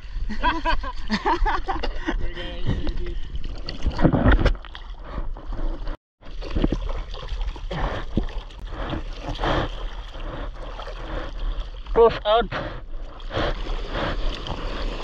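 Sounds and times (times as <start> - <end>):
sea water splashing and sloshing: 3.2 - 15.0.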